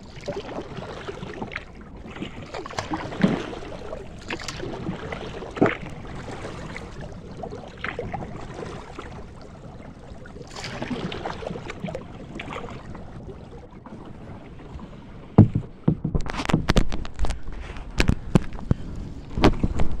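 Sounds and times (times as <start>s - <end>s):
water lapping against kayak: 0.0s - 20.0s
reeds snapping against hull: 15.4s - 20.0s.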